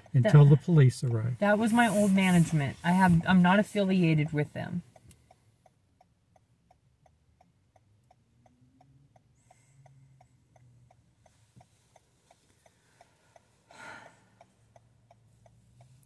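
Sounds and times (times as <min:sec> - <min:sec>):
hazard-light flasher ticking: 0:03.2 - 0:13.7.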